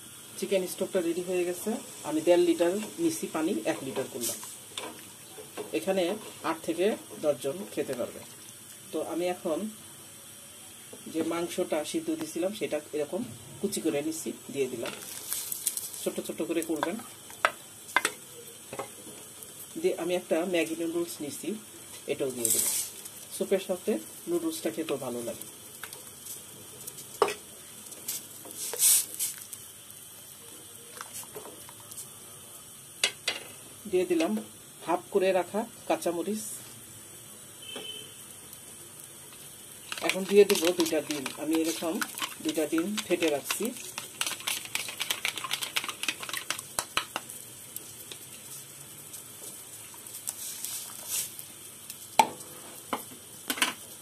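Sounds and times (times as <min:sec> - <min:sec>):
pot simmering and bubbling: 0:00.0 - 0:09.0, 0:21.6 - 0:34.8, 0:36.7 - 0:54.0
liquid swishing in a pot: 0:39.8 - 0:46.8.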